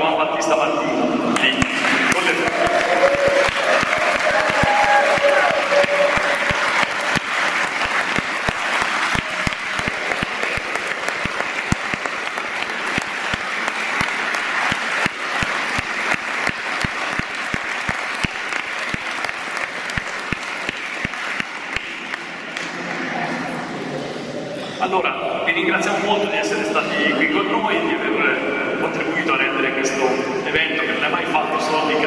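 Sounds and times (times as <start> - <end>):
crowd applauding: 1.4 - 23.3.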